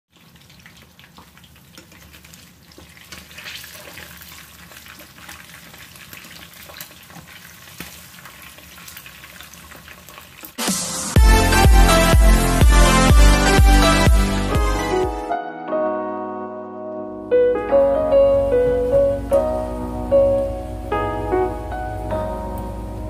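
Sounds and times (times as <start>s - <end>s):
chicken frying in hot oil: 0.1s - 10.6s.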